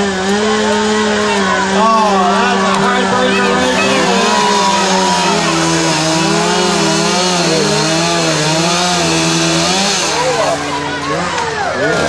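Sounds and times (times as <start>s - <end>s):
chainsaw cutting log: 0.0s - 12.0s.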